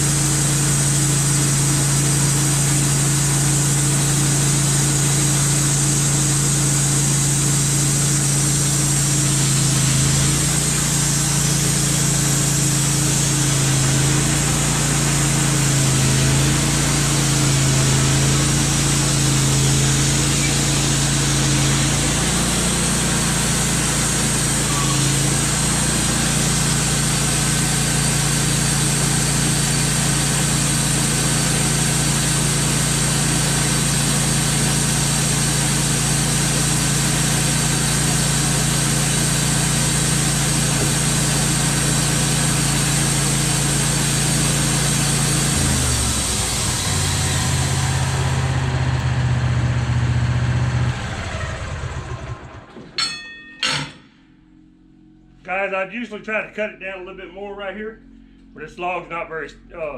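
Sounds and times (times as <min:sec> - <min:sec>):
sawmill engine running: 0:00.0 - 0:53.9
band blade hissing: 0:10.0 - 0:32.5.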